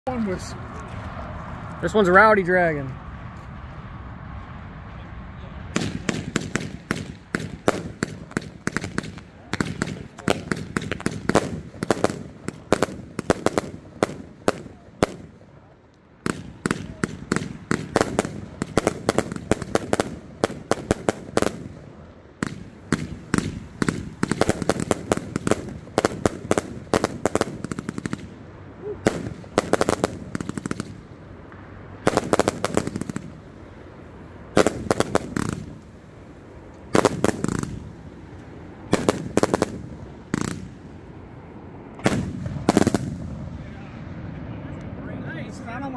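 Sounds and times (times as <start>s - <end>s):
firework cake firing: 5.7s - 33.7s, 34.5s - 38.2s, 38.8s - 41.0s, 42.0s - 44.0s.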